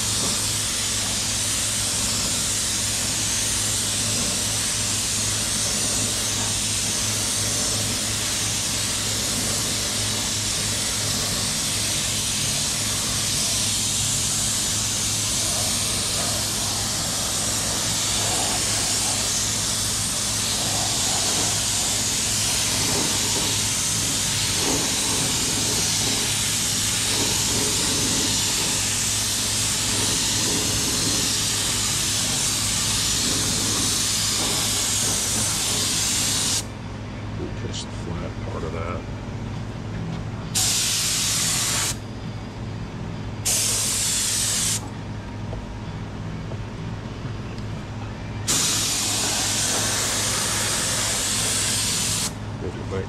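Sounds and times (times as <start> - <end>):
spray gun hissing: 0.0 - 36.7, 40.6 - 42.0, 43.4 - 44.8, 48.5 - 52.4.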